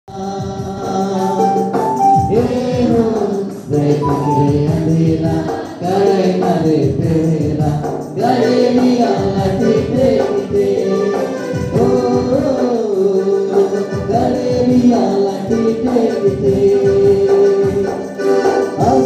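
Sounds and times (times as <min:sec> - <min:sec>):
group singing a hymn: 0:00.1 - 0:19.0
drum beaten with sticks: 0:00.3 - 0:13.0
electronic keyboard: 0:00.8 - 0:05.7.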